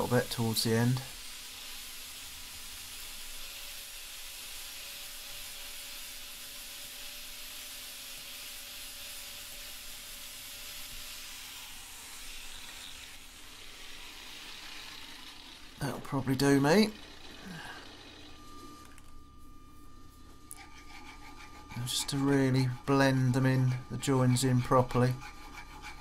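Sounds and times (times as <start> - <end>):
angle grinder grinding metal: 0.0 - 26.0
motor whine: 10.8 - 24.2.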